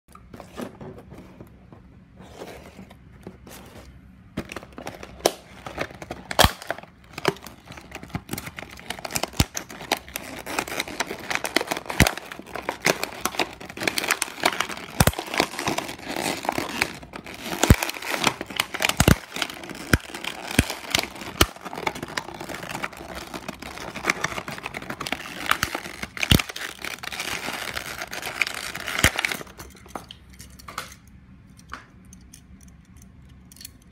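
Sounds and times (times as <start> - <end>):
plastic blister pack crinkling: 4.4 - 29.7.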